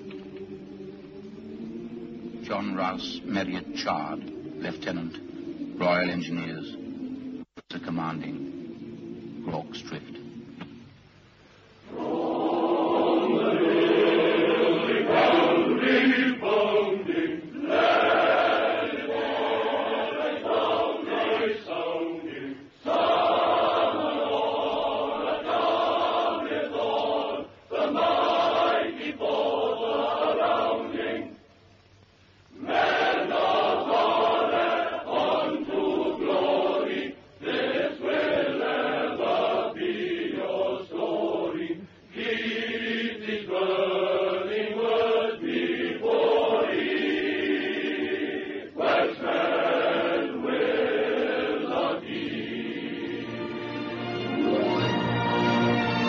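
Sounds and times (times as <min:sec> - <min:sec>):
men's voices chanting: 0:11.9 - 0:31.4, 0:32.6 - 0:53.4.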